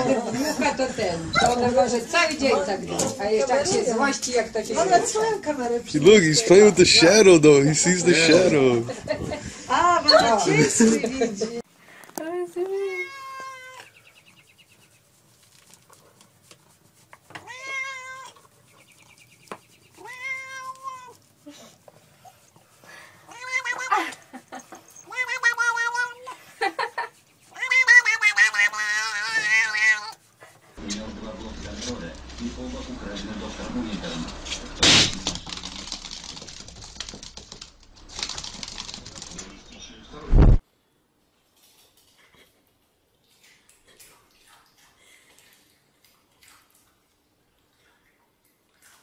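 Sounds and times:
cat meowing: 12.8s - 13.9s, 17.4s - 18.5s, 20.0s - 21.2s, 23.3s - 24.1s, 25.0s - 26.4s, 27.5s - 30.2s
balloon bursting: 34.8s - 38.8s
camera thump: 40.3s - 40.6s.

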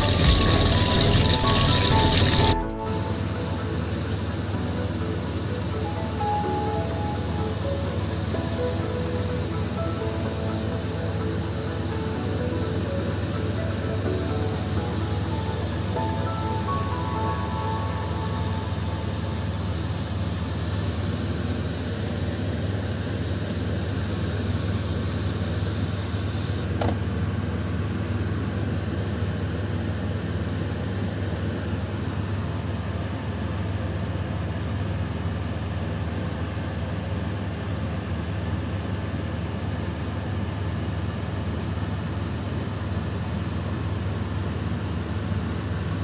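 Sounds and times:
constant hiss: 0.0s - 21.2s
low machine hum: 0.0s - 26.1s.

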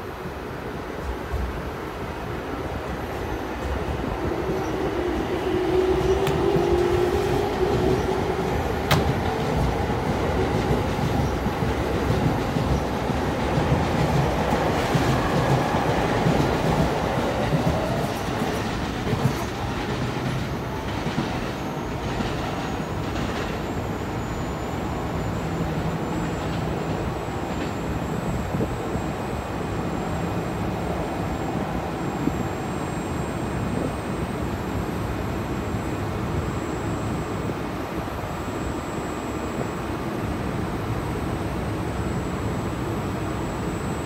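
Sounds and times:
faint whine: 17.0s - 44.0s.

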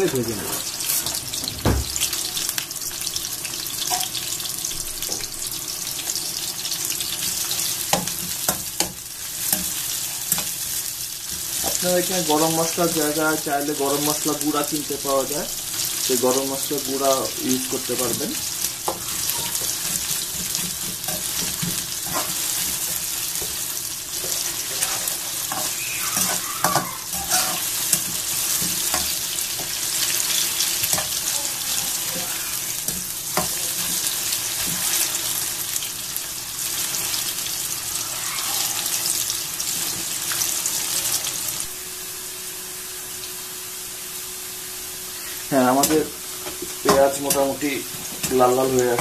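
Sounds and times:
onions sizzling in oil: 0.0s - 49.0s
spatula scraping a pan: 18.6s - 35.2s.

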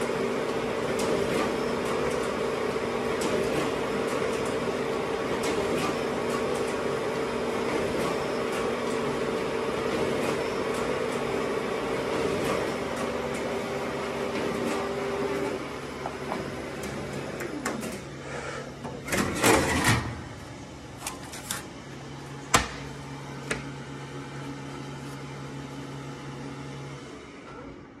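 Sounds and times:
printer mechanical hum: 0.0s - 28.0s
paper handling clicks and clunks: 21.0s - 21.8s.

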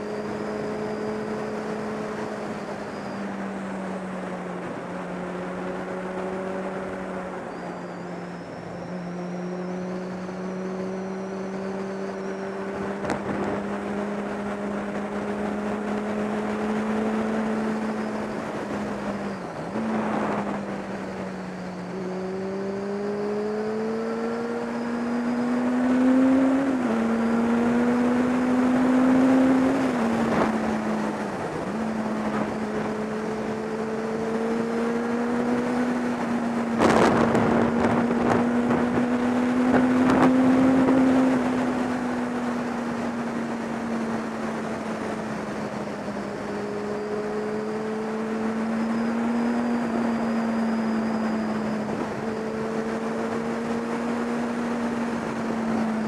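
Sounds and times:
motorcycle engine upshifting: 0.0s - 56.0s
wind on camera microphone: 36.1s - 42.2s.

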